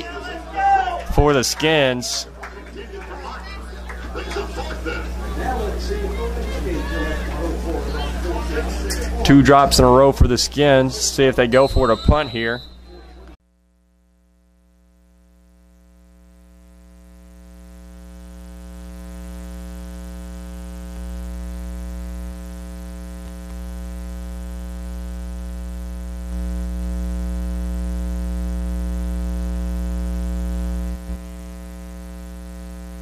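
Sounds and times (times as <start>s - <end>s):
electrical mains hum: 0.0s - 33.0s.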